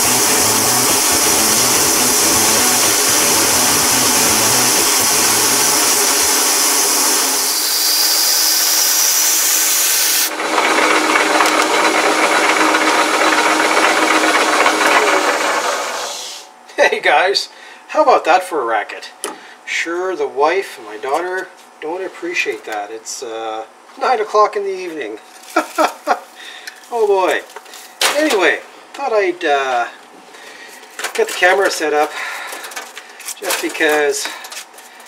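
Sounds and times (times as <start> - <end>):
coolant mist hissing: 0.0 - 16.5
drill grinding through metal: 0.0 - 16.5.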